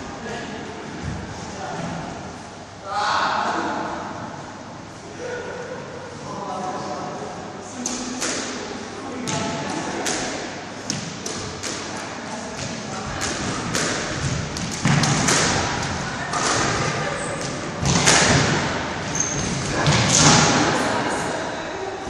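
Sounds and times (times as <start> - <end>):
squash ball knocks: 9.2 - 18.8.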